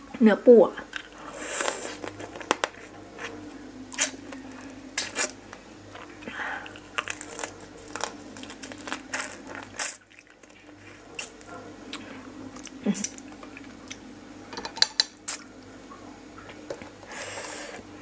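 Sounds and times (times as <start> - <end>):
wet squishing of crab eating: 0.9 - 14.0.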